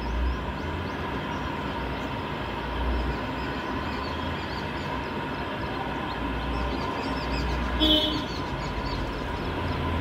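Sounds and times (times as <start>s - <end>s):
bird chirps: 2.9s - 10.0s.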